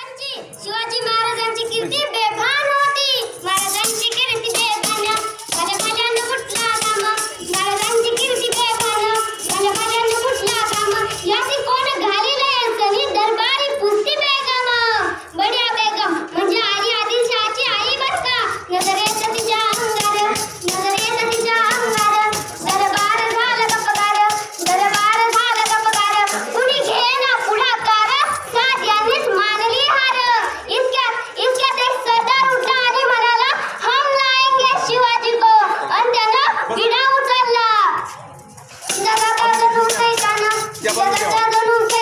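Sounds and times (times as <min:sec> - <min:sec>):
child singing: 0:01.6 - 0:36.4, 0:38.8 - 0:42.0
frame drum with jingles: 0:03.3 - 0:11.9, 0:18.6 - 0:28.9, 0:38.6 - 0:42.0.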